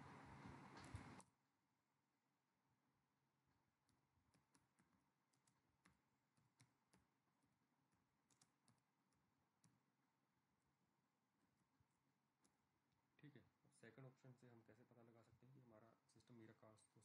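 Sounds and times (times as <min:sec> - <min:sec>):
faint keyboard typing: 0:00.4 - 0:01.3, 0:03.8 - 0:10.8.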